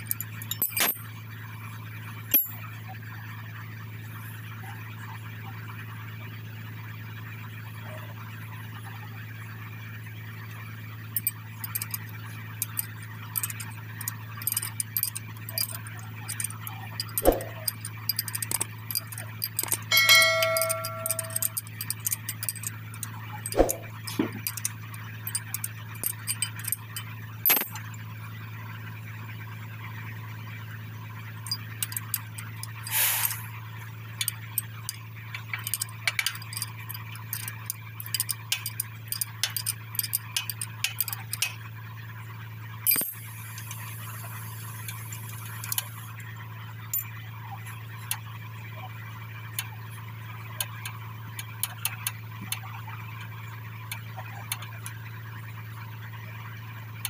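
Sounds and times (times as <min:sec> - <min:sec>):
metal parts clinking and clicking: 0:00.0 - 0:01.1, 0:02.3 - 0:02.6, 0:11.2 - 0:28.0, 0:31.4 - 0:33.5, 0:34.2 - 0:41.7, 0:42.8 - 0:46.3, 0:46.9 - 0:47.2, 0:50.5 - 0:55.0
steady low hum: 0:00.0 - 0:57.0.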